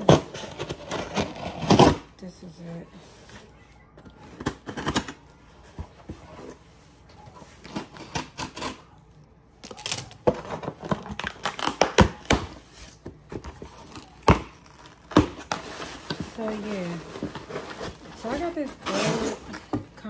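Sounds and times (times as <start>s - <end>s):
packaging tearing and crinkling: 9.6s - 12.6s, 13.5s - 18.6s.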